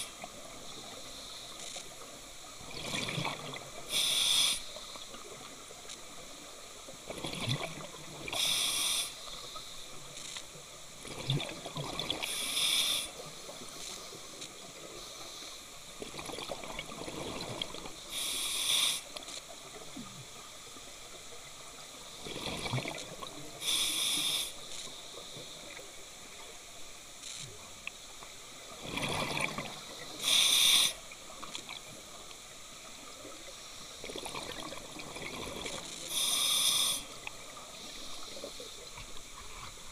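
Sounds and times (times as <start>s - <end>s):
diver breathing through regulator: 3.9s - 4.7s, 18.1s - 19.1s, 23.6s - 24.6s, 30.1s - 31.0s, 36.0s - 37.2s.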